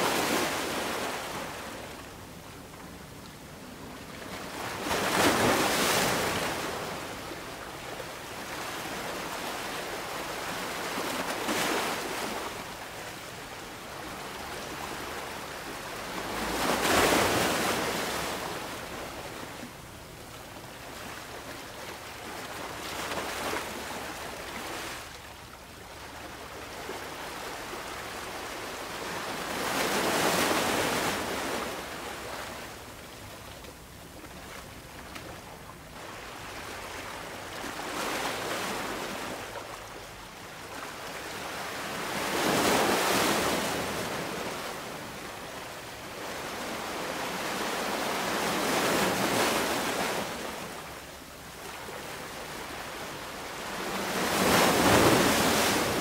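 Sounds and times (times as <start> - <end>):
ocean surf breaking: 53.7 - 56.0.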